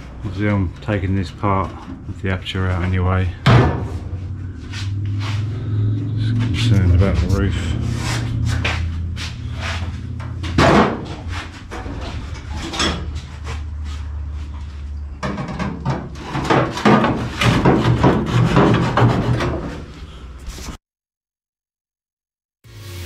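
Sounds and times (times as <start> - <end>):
steady low hum: 0.0 - 14.8
metal knocking and clatter: 10.1 - 13.3, 15.2 - 19.8.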